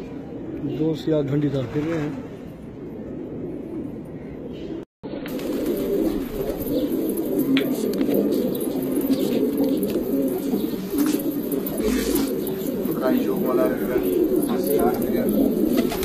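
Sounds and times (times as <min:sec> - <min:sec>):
pigeons cooing: 0:00.0 - 0:16.0.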